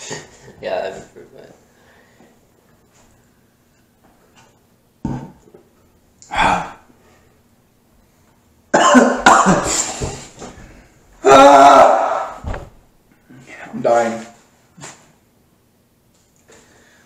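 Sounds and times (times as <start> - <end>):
man coughing: 8.7 - 10.0.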